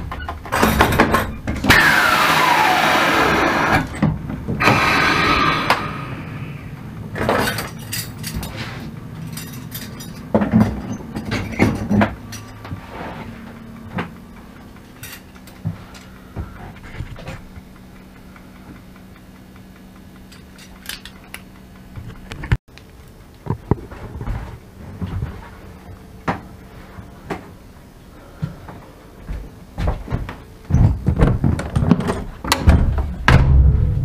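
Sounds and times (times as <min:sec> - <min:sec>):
low steady hum in locomotive cab: 0:05.7 - 0:34.0
clicks knocks and clunks: 0:29.8 - 0:33.8.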